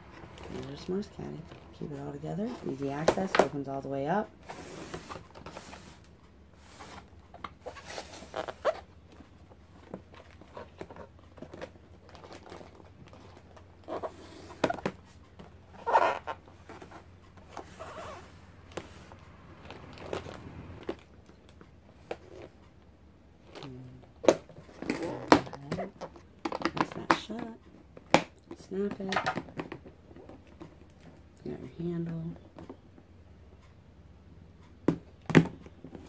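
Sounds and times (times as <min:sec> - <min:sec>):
plastic trays clicking and knocking: 0:23.5 - 0:31.2.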